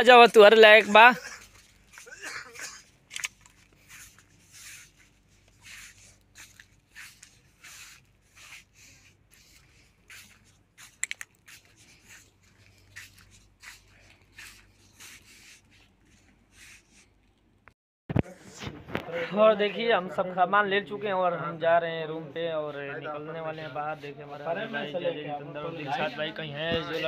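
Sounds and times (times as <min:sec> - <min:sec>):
faint rubbing and rustling: 0:00.3 - 0:17.4
sharp clicks: 0:11.0 - 0:11.4.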